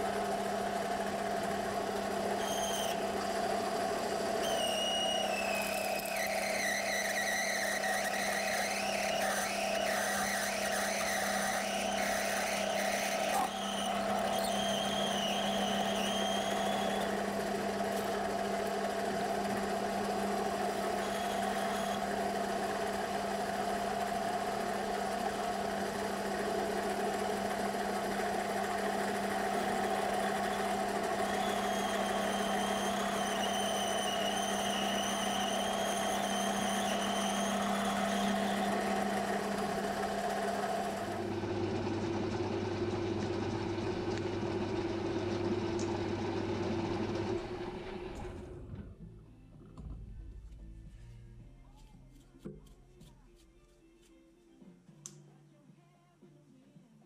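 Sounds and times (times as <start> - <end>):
metal lathe running: 0.0 - 48.5
faint high whine: 4.2 - 17.2, 29.7 - 41.2.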